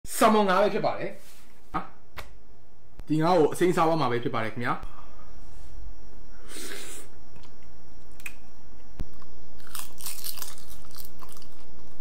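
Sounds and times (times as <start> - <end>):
crunching seaweed bites: 9.1 - 12.0.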